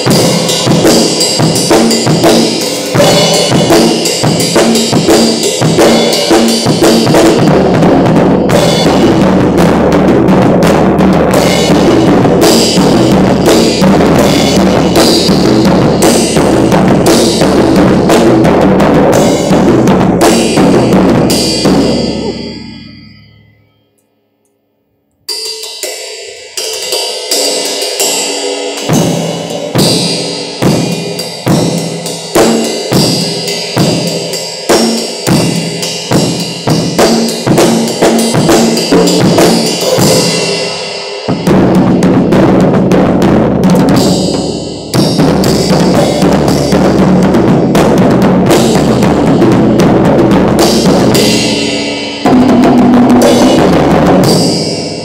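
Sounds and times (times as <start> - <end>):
cymbals ringing: 0.0 - 7.6, 20.4 - 24.0, 50.6 - 55.0
acoustic drum kit playing: 0.0 - 23.0, 28.7 - 55.0.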